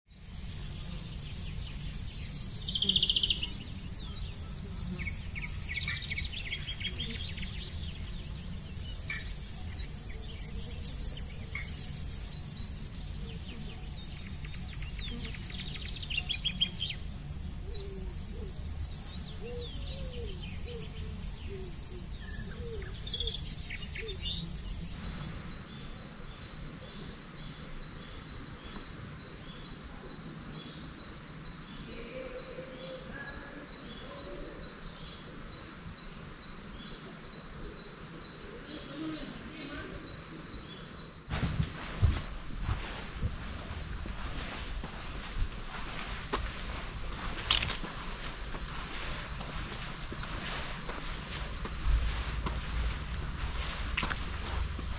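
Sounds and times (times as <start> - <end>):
pulsing high insect drone: 0.1 - 54.9
birds chirping and calling: 0.2 - 25.9, 37.6 - 54.9.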